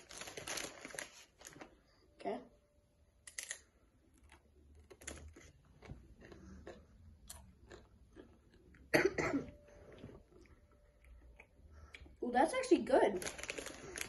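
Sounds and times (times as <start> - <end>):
person crunching potato chips: 0.0 - 1.7, 3.2 - 8.9, 13.2 - 14.0.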